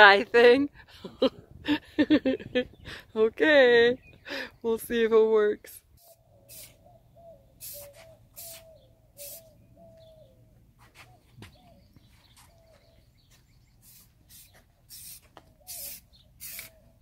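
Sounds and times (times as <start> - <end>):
bird calling: 5.9 - 17.0
spray paint can hissing: 6.0 - 6.8, 7.6 - 9.5, 13.8 - 17.0.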